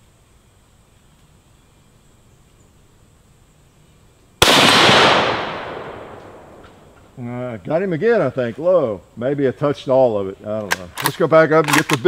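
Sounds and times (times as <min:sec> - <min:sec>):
rifle shot with echo: 0:04.4 - 0:06.9.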